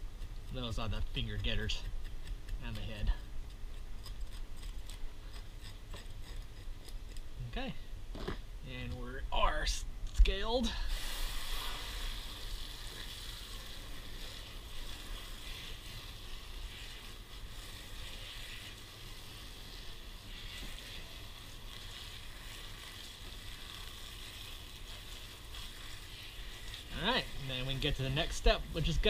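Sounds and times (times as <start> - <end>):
hose spray nozzle hissing: 10.8 - 29.0.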